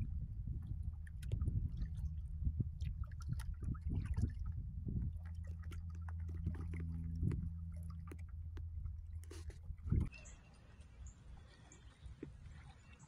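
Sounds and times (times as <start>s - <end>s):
low rumble: 0.0s - 10.1s
steady low hum: 0.0s - 10.1s
paddle strokes splashing water: 0.0s - 13.0s.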